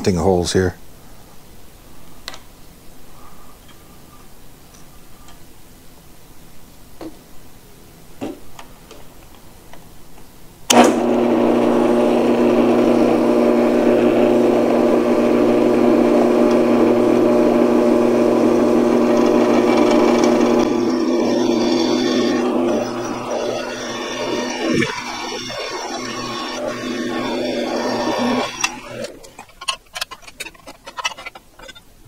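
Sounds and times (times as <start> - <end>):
drill press motor humming: 10.7 - 29.8.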